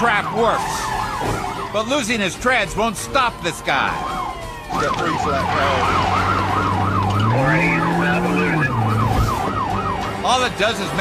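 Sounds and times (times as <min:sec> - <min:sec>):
police siren yelp: 0:00.0 - 0:02.2, 0:03.3 - 0:11.0.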